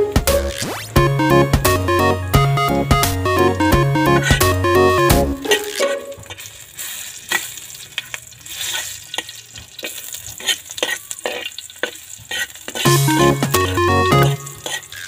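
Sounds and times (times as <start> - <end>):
garlic and onion sizzling in oil: 5.4 - 15.0.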